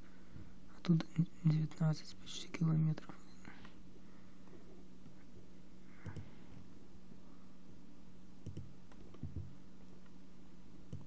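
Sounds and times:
steady low hum: 0.0s - 11.0s
computer mouse clicks: 8.4s - 9.4s.

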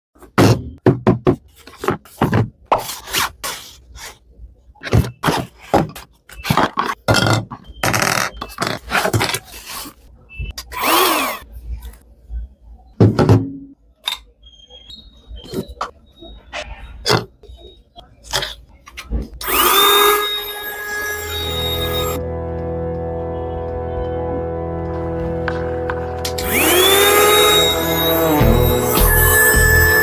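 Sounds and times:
plastic parts knocking and scraping: 0.2s - 3.4s, 4.8s - 10.0s.

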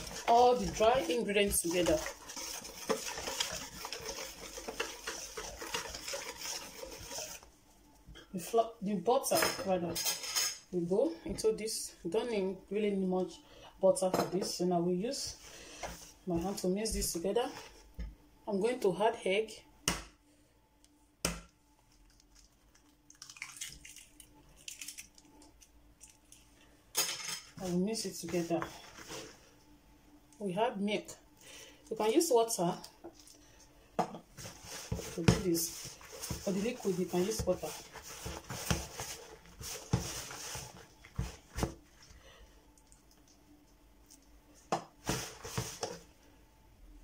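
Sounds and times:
dough squishing: 0.0s - 7.6s, 34.3s - 46.1s
eggshell cracking: 22.0s - 26.4s.

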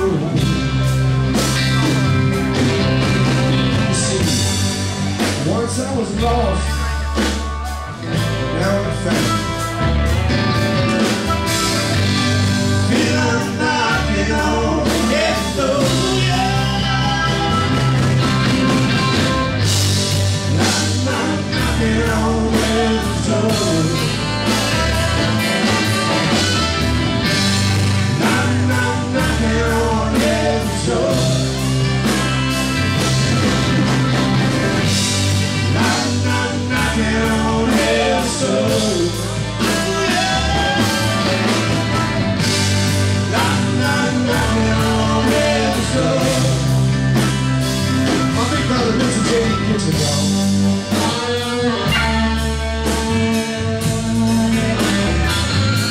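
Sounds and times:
bass guitar: 0.0s - 55.9s
drum kit: 0.0s - 55.9s
electric guitar: 0.0s - 55.9s
keyboards: 0.0s - 55.9s
saxophone: 6.9s - 13.6s, 51.0s - 55.9s
person singing: 12.0s - 18.4s, 20.5s - 25.0s, 28.1s - 31.8s, 35.6s - 42.5s, 43.2s - 46.9s.

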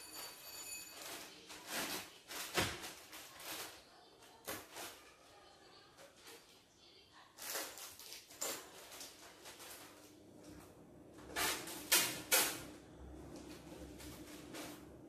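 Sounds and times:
plastic bag crinkling: 0.9s - 6.5s, 7.4s - 10.1s.

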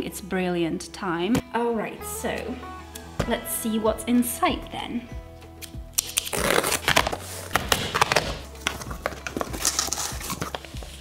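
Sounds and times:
scissors slitting packing tape: 5.6s - 10.7s
cardboard flaps tearing open: 6.0s - 10.7s.

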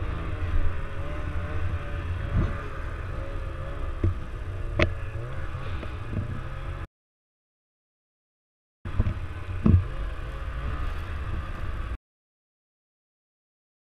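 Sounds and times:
snowmobile engine running: 0.0s - 6.9s, 8.9s - 12.0s.

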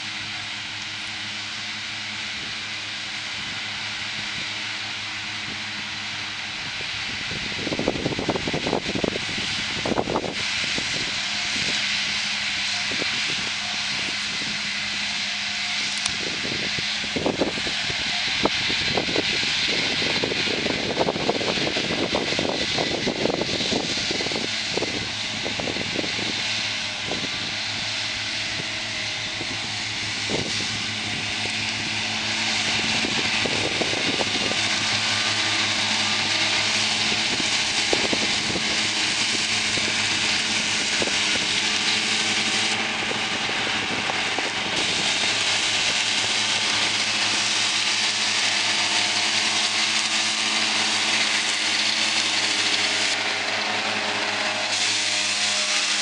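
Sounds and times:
mower discs whirring hiss: 0.0s - 56.0s
tractor engine drone: 0.0s - 56.0s.

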